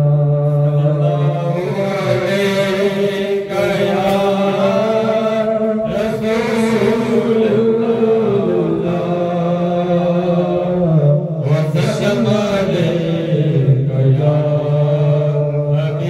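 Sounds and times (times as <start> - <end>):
men chanting a hymn: 0.0 - 16.0.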